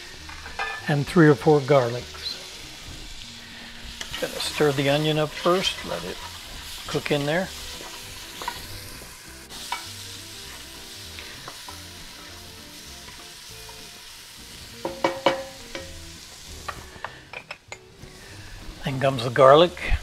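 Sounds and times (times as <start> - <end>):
onion sizzling in hot oil: 0.0 - 20.0.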